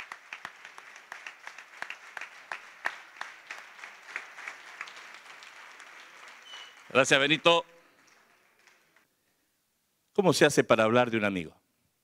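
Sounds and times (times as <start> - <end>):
light applause: 0.0 - 9.1.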